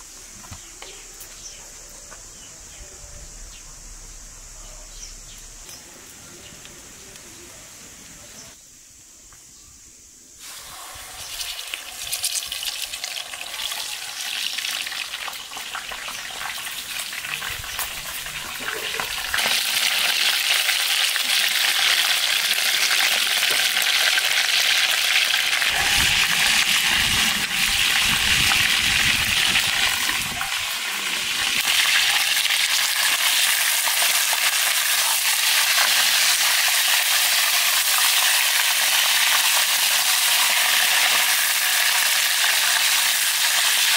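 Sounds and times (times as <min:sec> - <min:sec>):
meat sizzling in a pan: 0:10.4 - 0:43.9.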